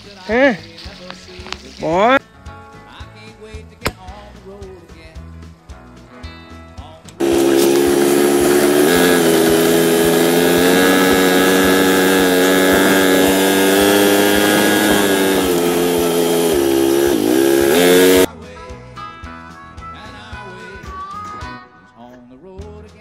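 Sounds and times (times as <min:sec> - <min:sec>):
utility vehicle engine running: 0:07.2 - 0:18.3.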